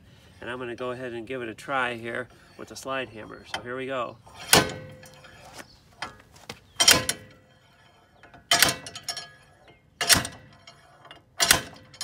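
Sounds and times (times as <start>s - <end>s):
slide hammer metal clanks: 4.3s - 6.2s, 6.8s - 12.0s.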